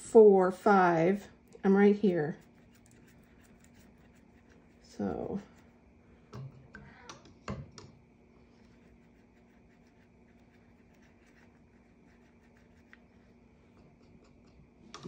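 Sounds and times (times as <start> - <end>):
low steady hum: 0.0 - 15.0
wet brush scrubbing paint: 2.1 - 5.8, 8.6 - 13.4.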